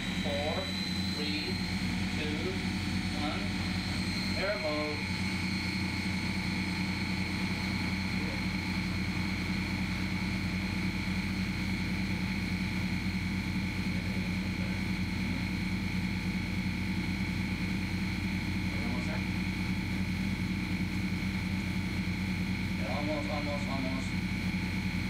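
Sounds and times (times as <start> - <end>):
boat machinery drone: 0.0 - 25.0
thin high whine: 0.0 - 25.0.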